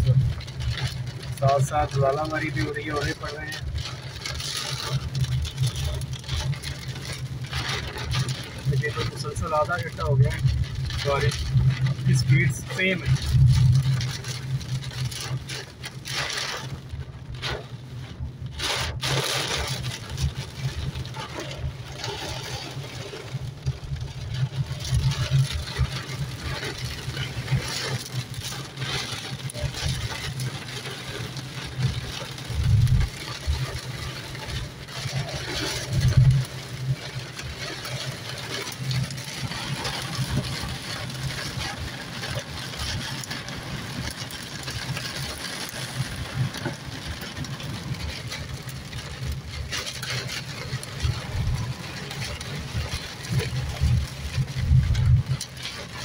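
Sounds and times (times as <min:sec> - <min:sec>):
car engine and road hum: 0:00.0 - 0:56.0
low rumbles: 0:00.0 - 0:56.0
rain on car windscreen: 0:00.0 - 0:56.0.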